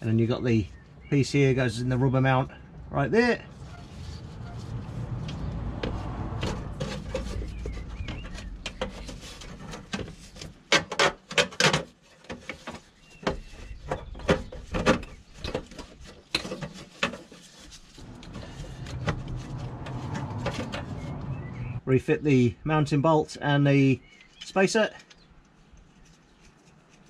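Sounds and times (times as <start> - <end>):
sharp knocks and clicks of handling: 5.2 - 21.3.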